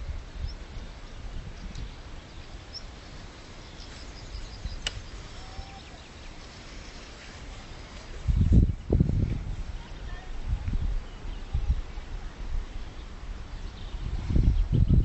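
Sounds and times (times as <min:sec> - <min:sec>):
wind rumbling on microphone: 0:00.0 - 0:15.0
faint bird calls: 0:00.5 - 0:07.5.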